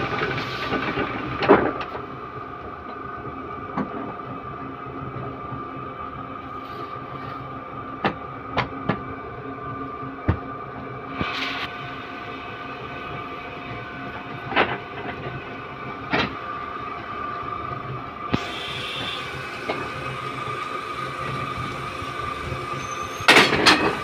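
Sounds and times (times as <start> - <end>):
machine humming: 11.0 - 24.0
brief hiss: 11.2 - 11.8.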